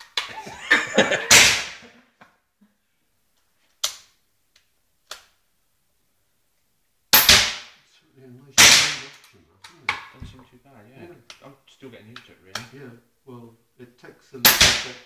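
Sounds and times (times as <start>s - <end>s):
air rifle shots: 1.3s - 1.8s, 7.1s - 7.8s, 8.6s - 9.1s, 14.4s - 15.0s.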